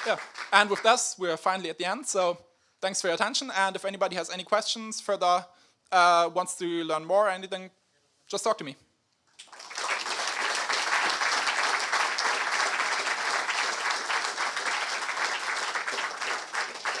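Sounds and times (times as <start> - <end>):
audience applauding: 0.0 - 1.0, 9.4 - 17.0.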